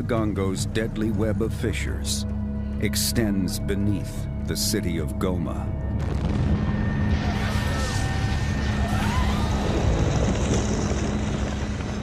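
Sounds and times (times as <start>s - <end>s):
low background music drone: 0.0s - 12.0s
lava fountain rushing rumble: 6.0s - 12.0s.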